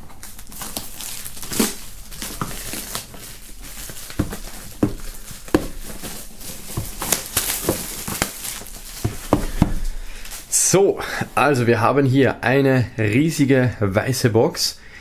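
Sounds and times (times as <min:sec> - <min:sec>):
plastic film crinkling: 0:00.0 - 0:11.7
box knocking on table: 0:04.2 - 0:06.0, 0:09.0 - 0:09.9.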